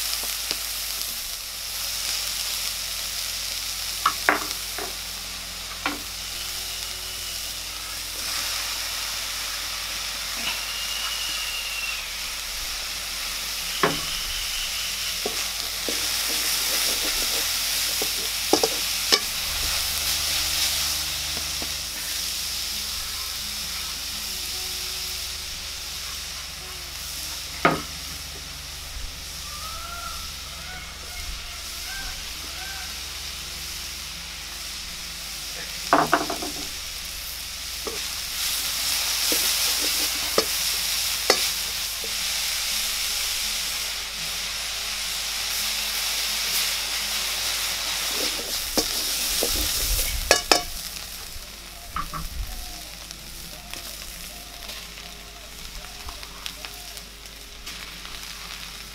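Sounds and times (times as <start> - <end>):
vegetables sizzling in oil: 0.0 - 58.9
wooden spatula scraping wok: 13.2 - 24.3, 35.6 - 42.6, 47.6 - 51.0.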